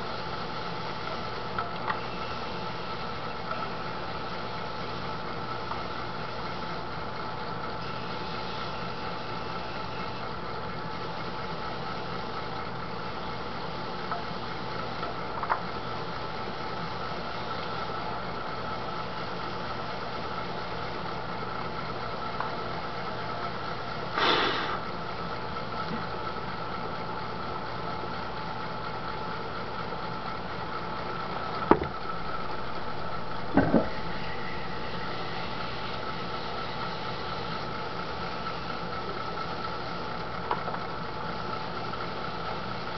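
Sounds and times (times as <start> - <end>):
potter's wheel motor humming: 0.0 - 42.9
brief noisy burst: 24.2 - 24.8.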